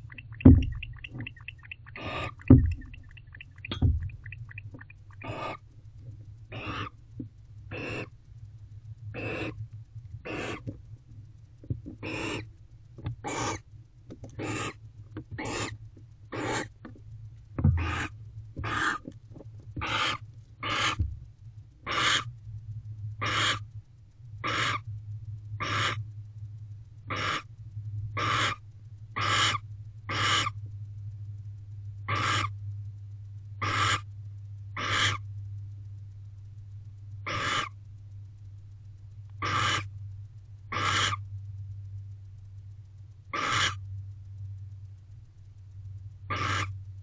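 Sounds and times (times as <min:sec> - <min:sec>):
owl chirping calls: 0:00.0 - 0:05.6, 0:06.5 - 0:07.0, 0:07.7 - 0:08.1, 0:09.2 - 0:09.6, 0:10.3 - 0:10.6, 0:12.0 - 0:12.5, 0:13.2 - 0:13.6, 0:14.4 - 0:14.8, 0:15.4 - 0:16.7, 0:17.7 - 0:19.1, 0:19.8 - 0:21.0, 0:21.9 - 0:22.3, 0:23.2 - 0:23.6, 0:24.4 - 0:24.8, 0:25.6 - 0:26.0, 0:27.1 - 0:27.5, 0:28.2 - 0:28.6, 0:29.2 - 0:30.6, 0:32.1 - 0:32.5, 0:33.6 - 0:34.1, 0:34.8 - 0:35.2, 0:37.2 - 0:37.8, 0:39.4 - 0:39.9, 0:40.7 - 0:41.2, 0:43.3 - 0:43.8, 0:46.3 - 0:46.7
steady low hum: 0:00.0 - 0:47.0
single thump: 0:00.4 - 0:00.9, 0:02.5 - 0:03.0, 0:03.7 - 0:04.3.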